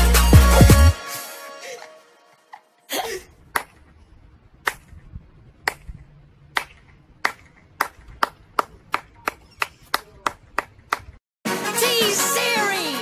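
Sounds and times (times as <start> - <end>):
slow hand clapping: 6.5 - 11.2.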